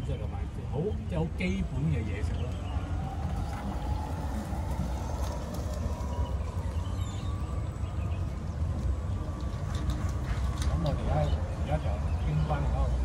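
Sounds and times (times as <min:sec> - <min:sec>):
road noise: 0:00.0 - 0:13.0
wind buffeting: 0:01.2 - 0:12.2
golf cart rumble: 0:02.2 - 0:11.6.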